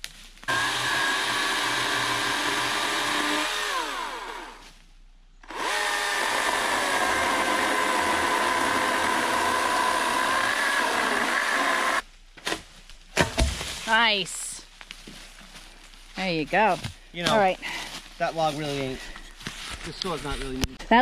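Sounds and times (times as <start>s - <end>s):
chainsaw cutting log: 0.5s - 4.6s, 5.4s - 12.0s.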